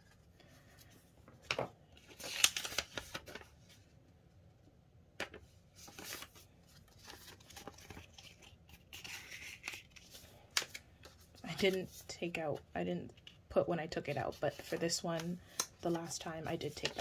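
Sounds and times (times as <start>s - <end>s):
plastic crinkly rustling: 5.8s - 10.4s.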